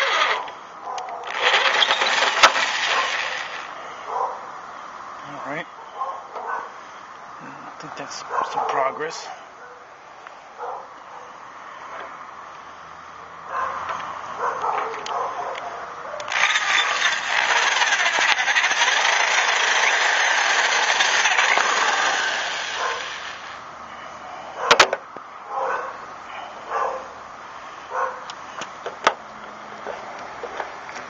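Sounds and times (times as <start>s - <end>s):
cordless drill boring into metal: 0.0s - 0.6s, 1.2s - 3.8s, 16.3s - 23.6s
dog barking: 0.9s - 1.3s, 4.1s - 4.4s, 5.8s - 6.7s, 8.3s - 9.8s, 10.6s - 11.4s, 13.5s - 16.3s, 22.8s - 23.0s, 25.5s - 26.0s, 26.7s - 27.2s, 27.9s - 28.2s.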